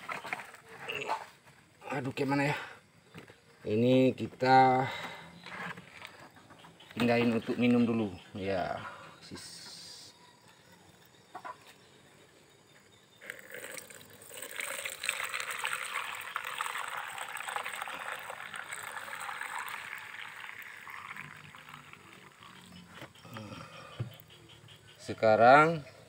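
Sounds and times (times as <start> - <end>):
liquid pouring into strainer: 13.2 - 22.7.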